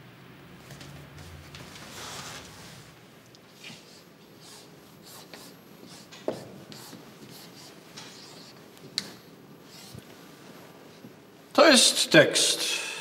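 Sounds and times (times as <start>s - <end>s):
marker scratching on whiteboard: 3.6s - 10.1s.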